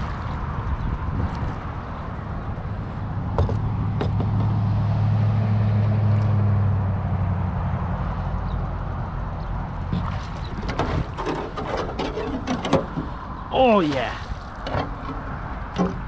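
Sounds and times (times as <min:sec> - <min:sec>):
boat motor humming: 0:00.0 - 0:16.0.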